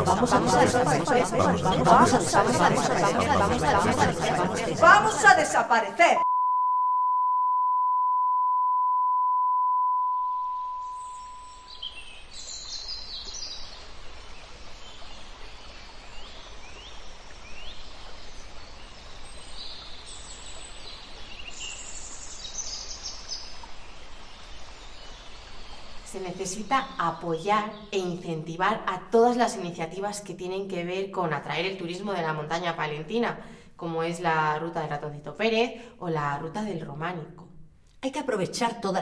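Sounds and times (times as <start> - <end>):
high-pitched beep tone: 6.2 - 11.8
birds chirping: 10.8 - 13.7.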